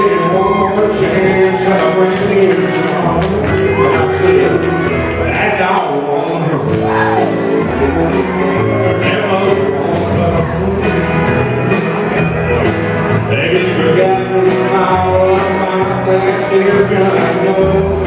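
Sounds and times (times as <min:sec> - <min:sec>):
live country band playing: 0:00.0 - 0:18.0
man singing: 0:00.0 - 0:18.0.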